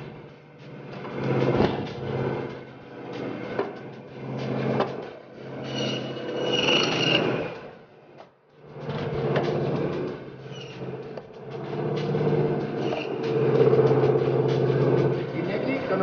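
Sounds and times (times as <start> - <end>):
high ringing whine: 0.0 - 7.9
band saw cutting meat and bone: 9.4 - 16.0.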